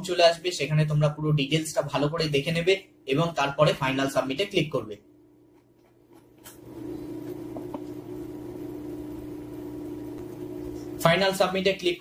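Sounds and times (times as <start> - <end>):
low hum: 6.6 - 11.0.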